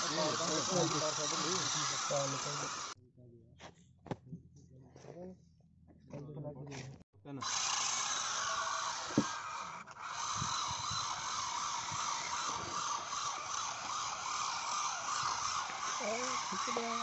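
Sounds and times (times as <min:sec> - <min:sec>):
electric motors whining: 0:00.0 - 0:03.0, 0:07.4 - 0:17.0.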